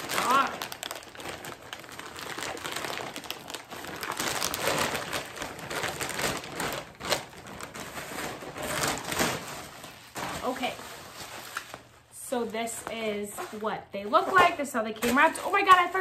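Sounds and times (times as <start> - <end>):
plastic bag tearing: 0.0 - 11.9
plastic bag crinkling: 0.0 - 16.0.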